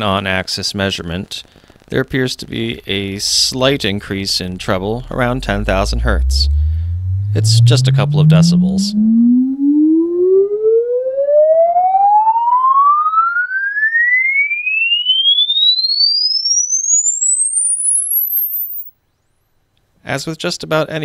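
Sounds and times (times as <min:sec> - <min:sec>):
rising sine sweep tone: 0:02.9 - 0:18.9.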